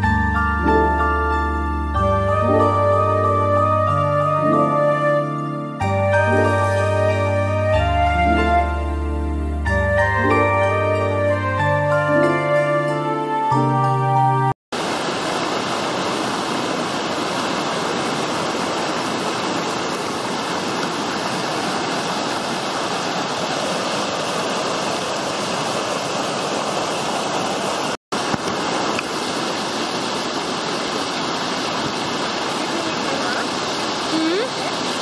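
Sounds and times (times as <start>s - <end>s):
stream rushing over boulders: 14.7s - 35.0s.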